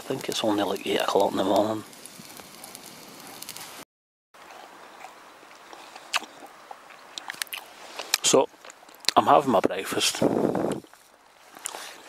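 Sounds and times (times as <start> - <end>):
sausage sizzling in a frying pan: 0.0 - 3.8.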